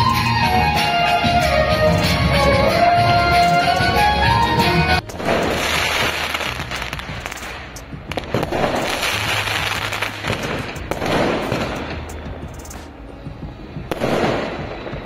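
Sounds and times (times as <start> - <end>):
firecrackers crackling and popping: 5.0 - 13.0, 13.9 - 15.0.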